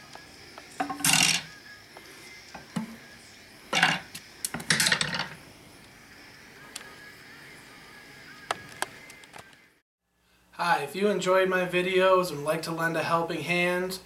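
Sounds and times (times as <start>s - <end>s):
metal and wood scraping: 3.7s - 5.4s.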